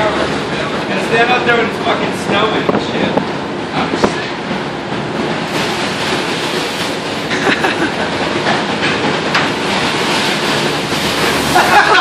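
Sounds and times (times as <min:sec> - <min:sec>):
boat engine rumble: 0:00.0 - 0:12.0
rattles and clanks from boat: 0:00.0 - 0:12.0.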